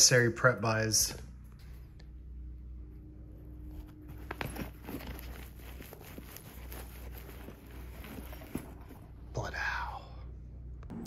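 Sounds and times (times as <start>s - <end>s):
faint low hum: 0.0s - 11.0s
fabric backpack rustling: 3.4s - 9.3s.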